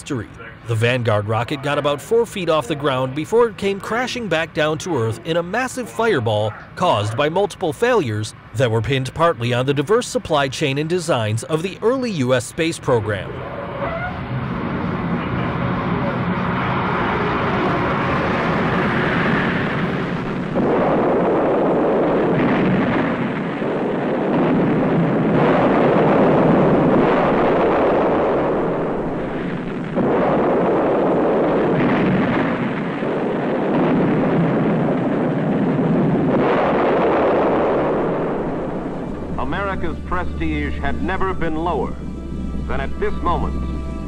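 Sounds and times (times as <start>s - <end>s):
rocket engine roaring: 0.0s - 44.0s
explosion blasts rumbling: 12.6s - 44.0s.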